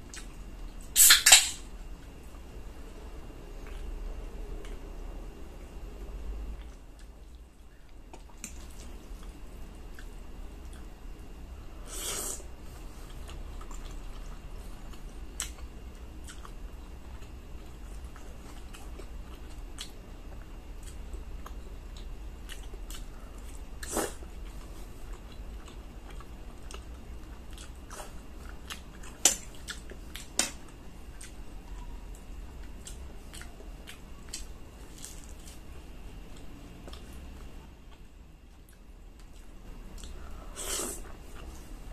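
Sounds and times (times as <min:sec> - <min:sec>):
low steady hum: 0:00.0 - 0:41.9
chewing spaghetti: 0:12.8 - 0:40.4.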